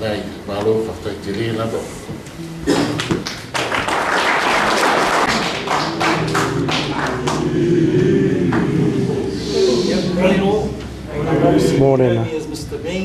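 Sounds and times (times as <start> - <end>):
dense noisy wash: 4.7 - 11.1
low steady pitched tone: 5.3 - 12.0.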